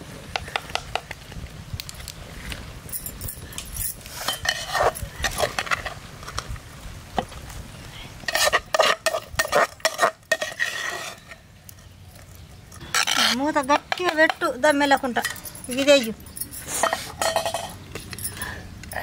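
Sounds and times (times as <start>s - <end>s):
metal ladle scraping pot: 4.0s - 6.0s, 8.2s - 11.5s, 12.8s - 15.6s, 16.6s - 17.8s.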